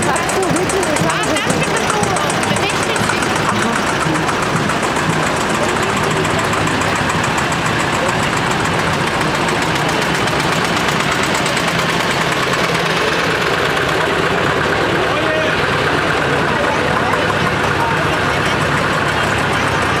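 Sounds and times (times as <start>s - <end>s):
more tractors running: 0.0s - 20.0s
people's voices: 0.0s - 20.0s
tractor engine running: 0.0s - 20.0s.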